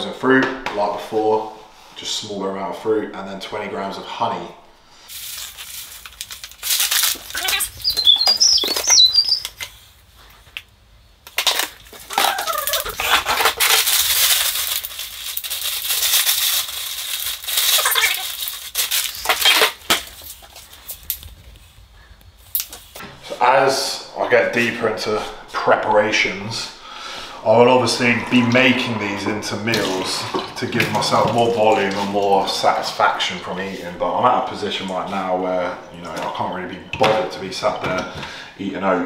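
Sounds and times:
plastic packets rustling: 0:05.1 - 0:09.8, 0:11.3 - 0:23.0.

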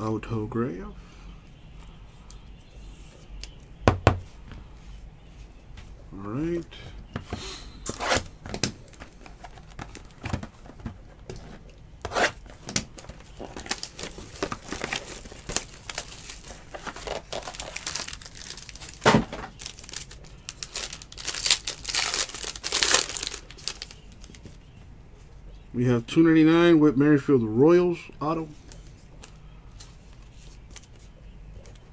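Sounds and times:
cardboard box rustling: 0:13.0 - 0:20.1.

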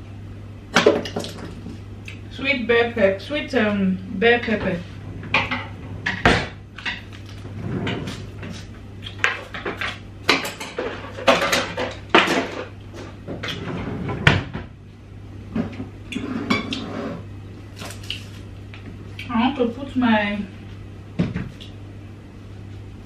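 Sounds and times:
steady low hum: 0:00.0 - 0:23.0
dishes and utensils clattering: 0:09.2 - 0:12.7.

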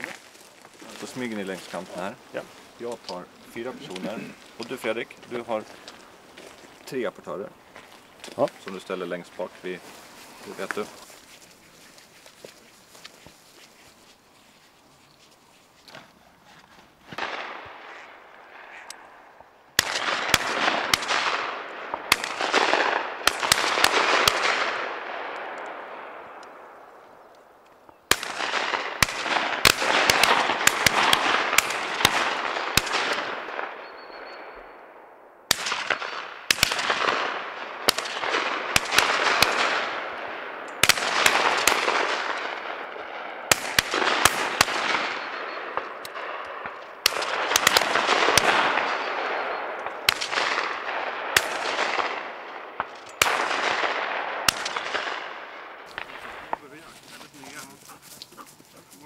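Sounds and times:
shotgun shots echoing: 0:17.1 - 0:19.2, 0:19.8 - 0:26.8, 0:28.1 - 0:34.6, 0:35.5 - 0:56.9.

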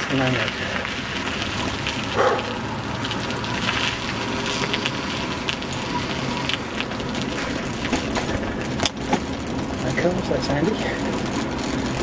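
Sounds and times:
bicycle rolling on gravel: 0:00.0 - 0:12.0.

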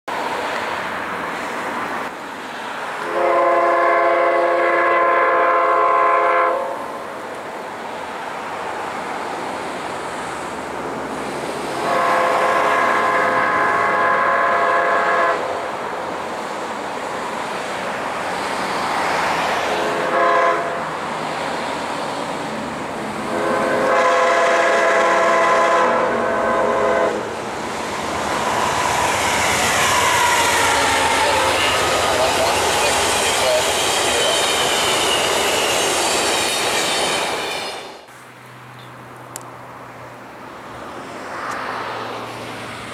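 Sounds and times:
train running noise: 0:00.1 - 0:42.9
locomotive air horn blowing: 0:03.0 - 0:06.8, 0:11.8 - 0:15.5, 0:19.8 - 0:20.8, 0:23.3 - 0:27.4, 0:29.2 - 0:35.6.

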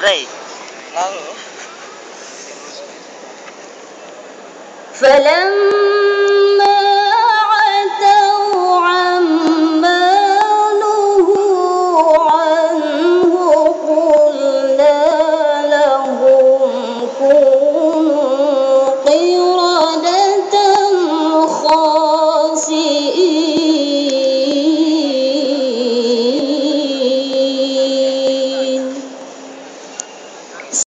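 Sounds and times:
woman reciting in melodic style: 0:04.9 - 0:29.6.

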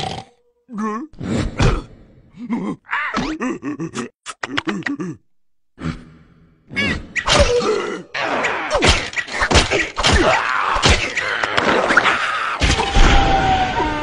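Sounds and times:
cartoon voices groaning and squealing: 0:00.7 - 0:05.2, 0:05.8 - 0:14.0
cartoon thumps and whacks: 0:08.7 - 0:12.0.

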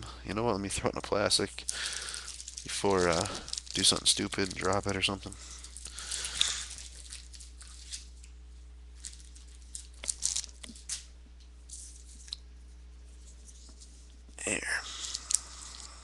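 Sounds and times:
low electrical hum: 0:00.0 - 0:16.0
plastic sleeve crinkling: 0:01.0 - 0:12.4.

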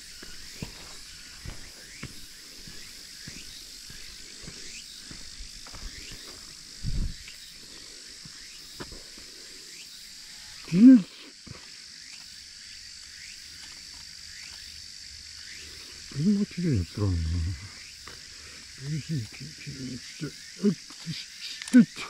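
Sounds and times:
footsteps on a path: 0:00.0 - 0:09.3
high-pitched insect chorus: 0:00.0 - 0:22.0.

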